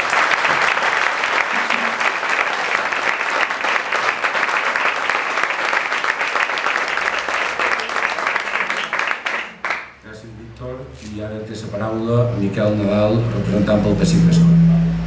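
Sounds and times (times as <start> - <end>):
crowd clapping: 0.0 - 10.0.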